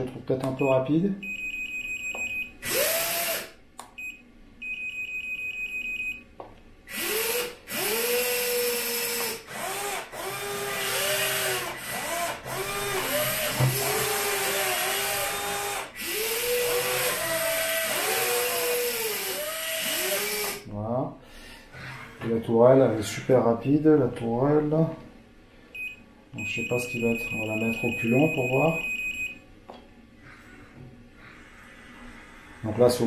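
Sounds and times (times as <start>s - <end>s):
electric motors whining: 6.9s - 20.6s
high electronic beeping: 25.8s - 29.4s.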